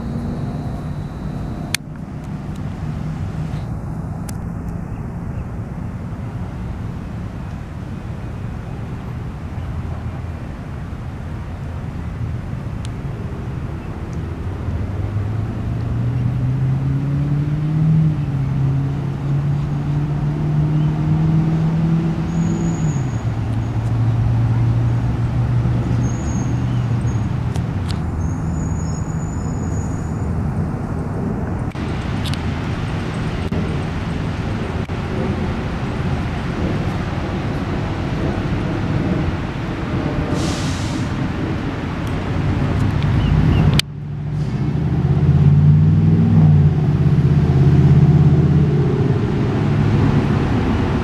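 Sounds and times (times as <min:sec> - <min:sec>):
motor engine drone: 0:00.0 - 0:07.5, 0:30.4 - 0:51.0
traffic background noise: 0:00.0 - 0:51.0.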